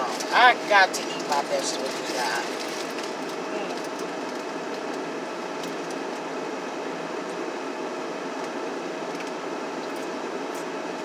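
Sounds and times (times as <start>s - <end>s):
car heater and engine hum: 0.0s - 11.0s.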